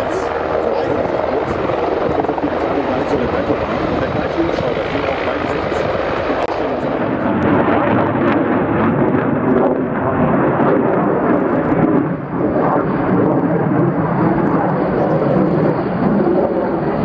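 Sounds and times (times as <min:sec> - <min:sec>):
turboprop aircraft passing overhead: 0:00.0 - 0:17.0.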